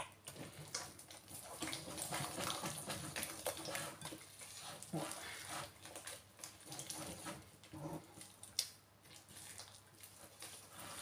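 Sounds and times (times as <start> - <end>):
fork beating batter in glass bowl: 0.0 - 8.3.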